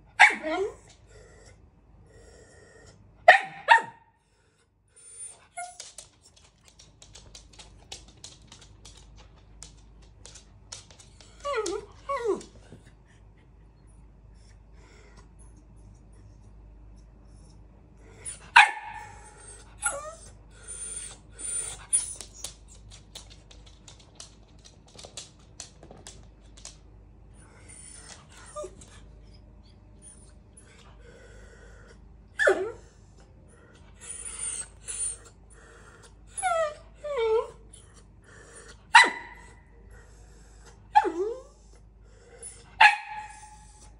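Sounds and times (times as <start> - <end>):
dog barking: 3.3 - 4.0, 18.6 - 19.1, 39.0 - 39.5, 42.8 - 43.4
dog yelping: 38.9 - 39.5.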